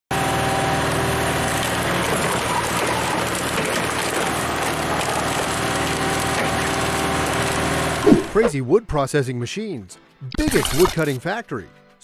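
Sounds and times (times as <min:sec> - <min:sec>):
log splitter engine running: 0:00.1 - 0:08.6.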